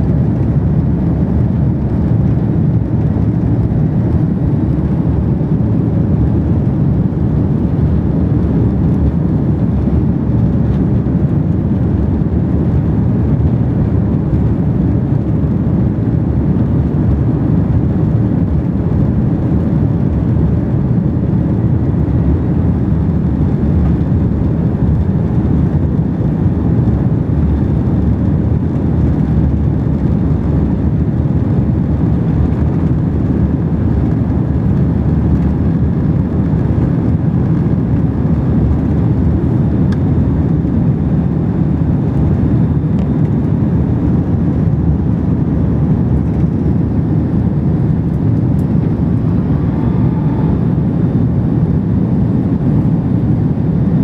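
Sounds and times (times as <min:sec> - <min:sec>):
jet engines rumbling: 0:00.0 - 0:54.0
rushing air: 0:41.8 - 0:54.0.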